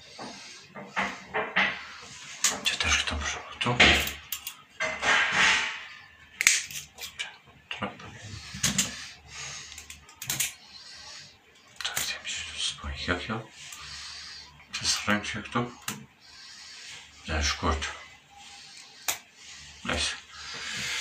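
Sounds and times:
cable rasping scrape: 0:13.5 - 0:21.0.

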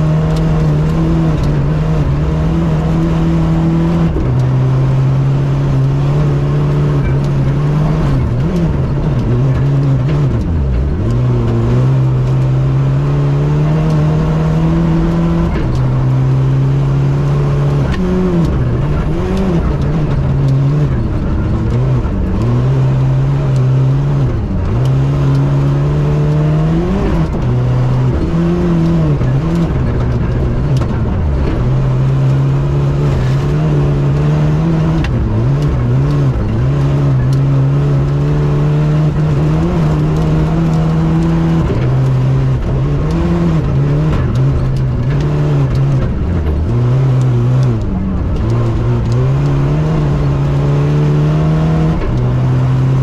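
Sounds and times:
rally car engine revving: 0:00.0 - 0:53.0.

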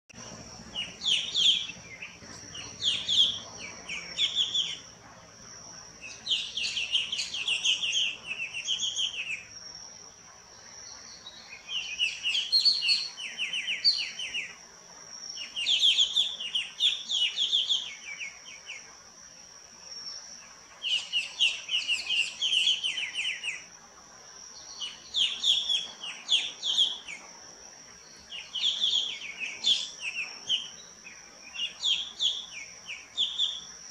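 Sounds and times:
steady high whine: 0:00.2 - 0:11.6.

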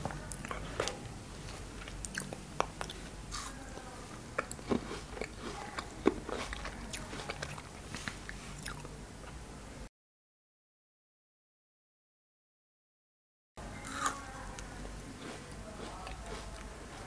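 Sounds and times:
crisp chewing crunches: 0:00.3 - 0:08.9, 0:13.8 - 0:17.0.

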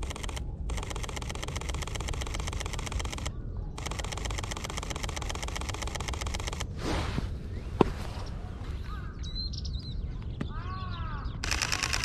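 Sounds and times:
camera shutter clicks: 0:00.0 - 0:06.7, 0:11.4 - 0:12.0.

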